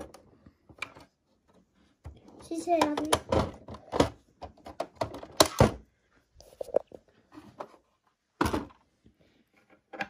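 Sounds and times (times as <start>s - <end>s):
plastic toy clicks and knocks: 2.5s - 5.8s.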